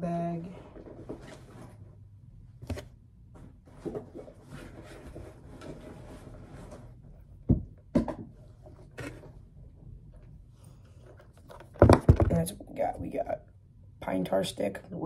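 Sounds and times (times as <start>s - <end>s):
fabric rustling and scraping: 0.5s - 2.0s, 2.6s - 7.2s
objects knocking on table: 11.7s - 12.4s.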